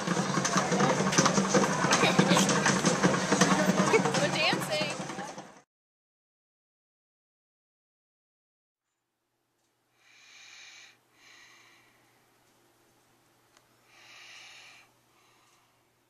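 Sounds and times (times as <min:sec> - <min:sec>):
faint steady hum: 0:08.9 - 0:16.0
child breathing noisily: 0:10.0 - 0:12.3, 0:13.8 - 0:16.0.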